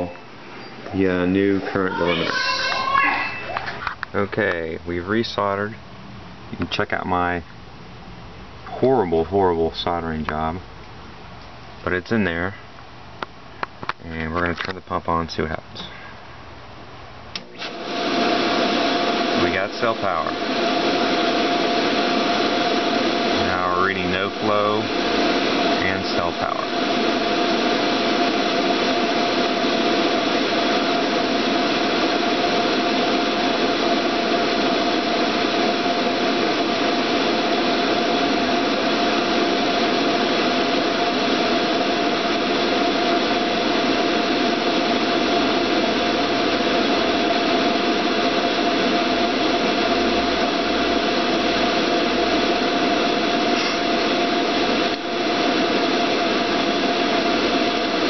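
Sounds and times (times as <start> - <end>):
pool pump motor running: 17.3 - 58.0
steady motor whine: 17.4 - 58.0.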